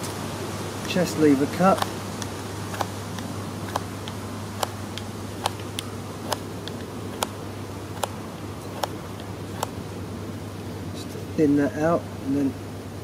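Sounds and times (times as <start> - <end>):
knife slicing wood clicks: 1.7 - 7.4, 8.8 - 9.8.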